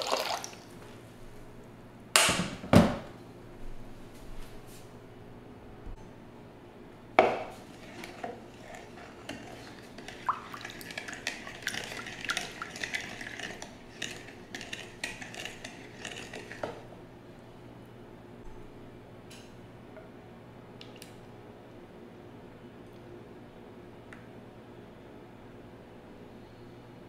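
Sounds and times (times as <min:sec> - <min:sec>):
wooden spoon stirring in a bowl: 0:07.4 - 0:16.9.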